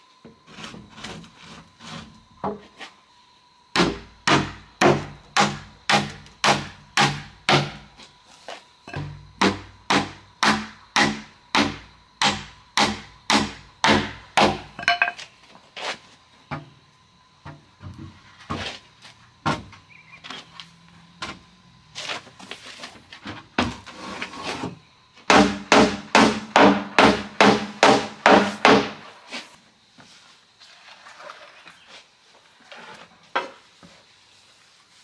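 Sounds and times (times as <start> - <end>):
tool striking wood: 3.7 - 7.9, 8.9 - 15.2, 25.3 - 29.0.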